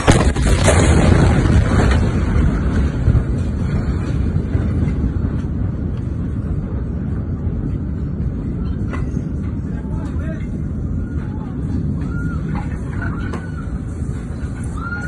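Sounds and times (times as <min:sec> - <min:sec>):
explosion blast rumbling roar: 0:00.0 - 0:09.8.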